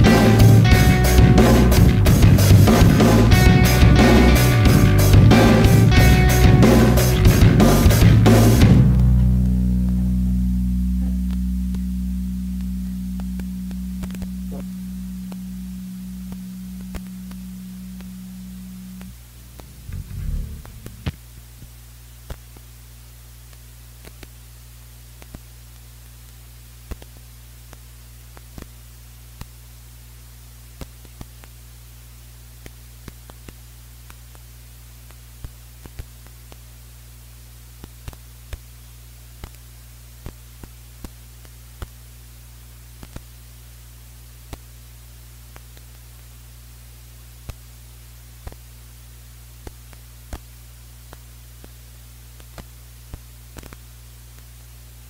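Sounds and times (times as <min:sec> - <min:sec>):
low electrical hum: 0:00.0 - 0:55.0
faint crackles and clicks: 0:11.0 - 0:22.7, 0:23.4 - 0:24.4, 0:25.1 - 0:29.6, 0:30.6 - 0:31.6, 0:32.5 - 0:36.8, 0:37.8 - 0:42.1, 0:42.7 - 0:43.5, 0:44.2 - 0:48.8, 0:49.5 - 0:54.8.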